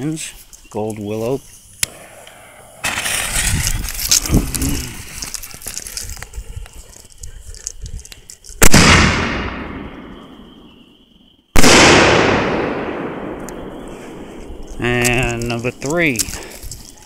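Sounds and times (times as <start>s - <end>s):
fuse hissing and crackling: 0.0s - 8.7s, 13.4s - 17.0s.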